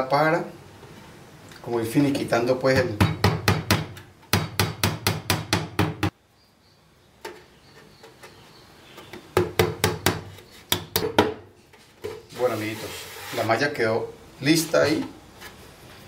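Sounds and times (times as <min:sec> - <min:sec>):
hammer tapping: 0:09.1 - 0:11.4.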